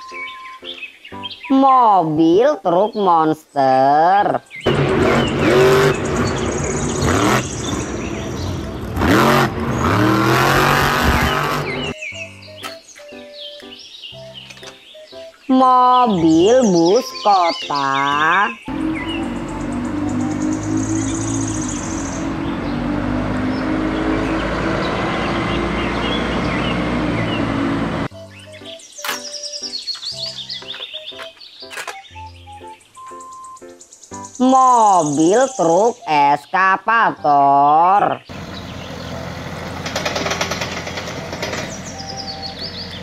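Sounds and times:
birds chirping: 0.0 - 43.0
truck engine revving loudly: 4.7 - 12.0, 18.6 - 28.1, 38.3 - 43.0.

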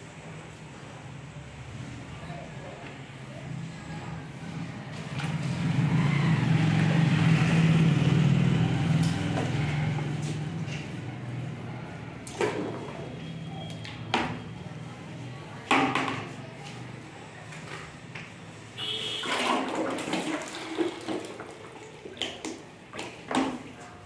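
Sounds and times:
plastic buckets knocking: 15.7 - 16.3, 19.2 - 23.8
paint pouring into bucket: 19.0 - 23.7.

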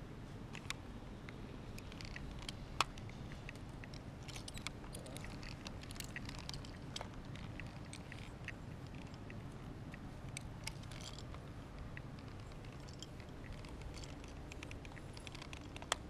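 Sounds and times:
steady low rumble: 0.0 - 16.0
metal climbing hardware clicking: 1.8 - 9.3.

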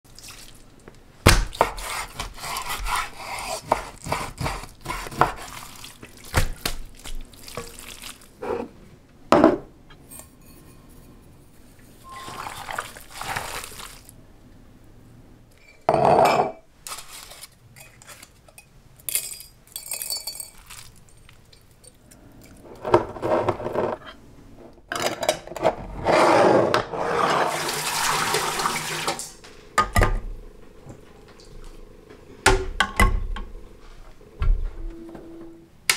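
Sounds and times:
meat being cut on wooden board: 1.3 - 5.5
water poured into metal pot: 12.1 - 14.1.

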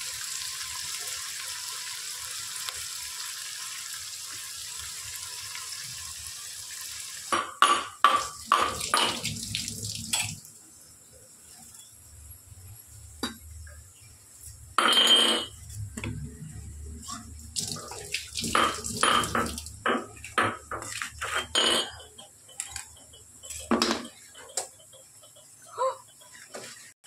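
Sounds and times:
tap water splashing into sink: 7.3 - 10.5, 17.6 - 20.6
steel bowl and knife clattering: 17.2 - 25.4.

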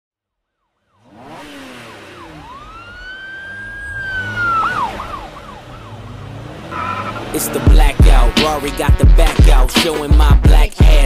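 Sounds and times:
siren wailing and yelping: 1.0 - 7.6.

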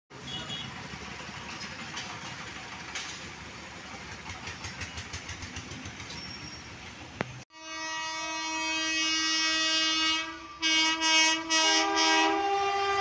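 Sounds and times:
small engines running: 0.2 - 7.2.

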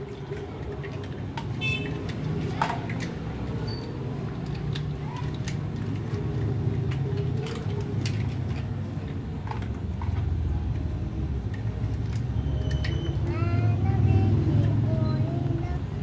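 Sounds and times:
plastic toys clattering in water: 0.0 - 10.5.

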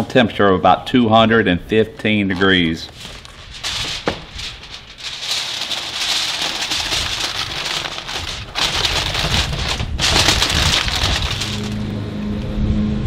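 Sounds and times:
aluminum foil crinkling: 2.3 - 11.9.

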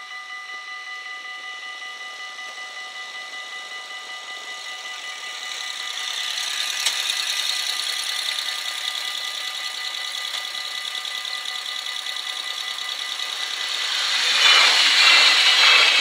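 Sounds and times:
railroad crossing bells ringing: 1.2 - 16.0
motorcycle engine idling: 4.1 - 16.0.

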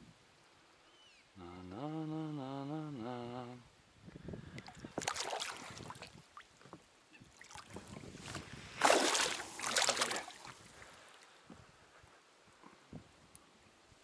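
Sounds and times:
water splashing: 4.6 - 6.5, 8.7 - 10.8
loud splashes: 5.0 - 6.0, 8.8 - 10.5.

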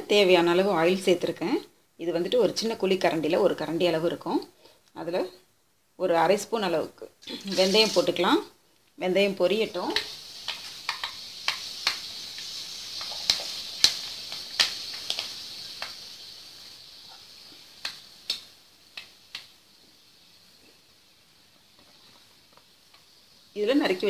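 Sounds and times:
seeds sizzling and popping in oil: 7.1 - 24.0.

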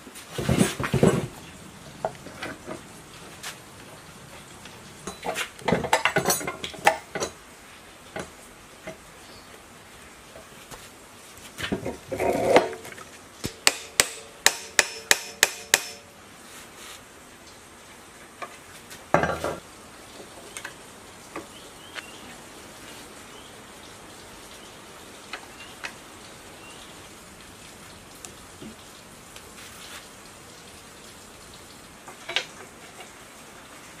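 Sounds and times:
rustle: 0.0 - 34.0
metal tool tapping metal: 13.4 - 16.0.

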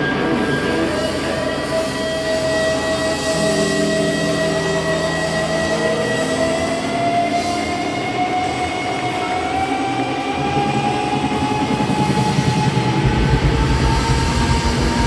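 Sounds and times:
distorted noisy wash: 0.0 - 15.0
electric guitar feedback tone: 0.0 - 15.0
low held notes: 0.0 - 15.0.

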